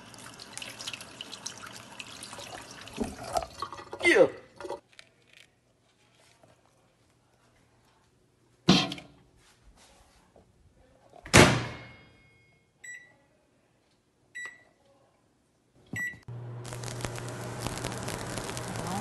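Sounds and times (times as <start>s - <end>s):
microwave humming: 16.0s - 19.0s.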